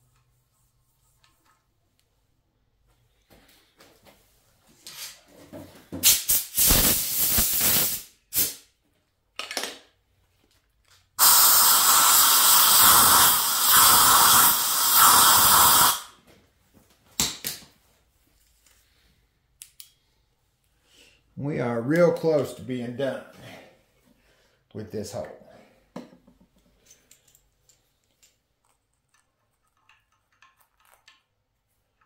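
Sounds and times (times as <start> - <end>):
compressed air blow gun hissing: 6.0 - 8.6, 11.2 - 16.1.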